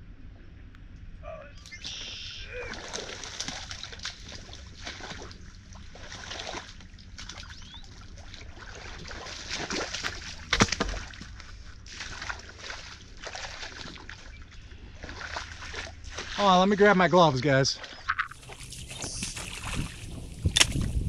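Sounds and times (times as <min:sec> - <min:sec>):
creek water sloshing and splashing: 0:01.9 - 0:21.0
loud splash: 0:02.4 - 0:05.4, 0:08.6 - 0:11.1.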